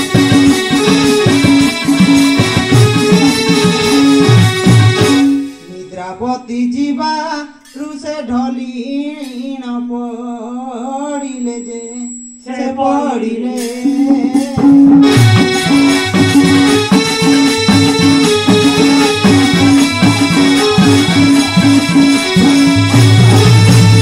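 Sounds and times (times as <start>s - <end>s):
hand drum beats: 0.0s - 5.4s, 13.6s - 24.0s
harmonium drone: 0.0s - 5.7s, 14.4s - 24.0s
solo voice singing: 5.7s - 15.0s.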